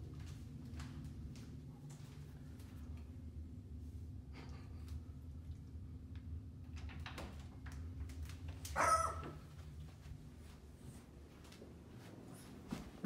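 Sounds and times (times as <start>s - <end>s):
low steady hum: 0.0s - 13.0s
dog barking: 8.8s - 9.4s.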